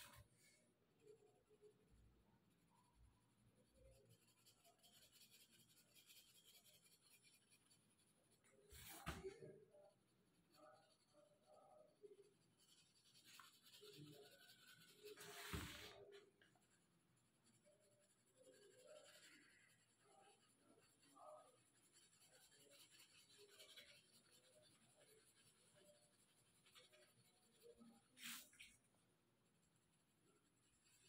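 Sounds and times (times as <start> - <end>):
pencil scratching on paper: 0.0 - 1.8, 2.5 - 31.0.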